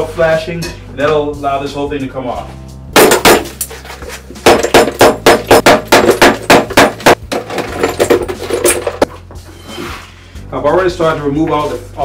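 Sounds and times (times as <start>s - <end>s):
hammer chipping ceramic tile: 4.5s - 7.4s.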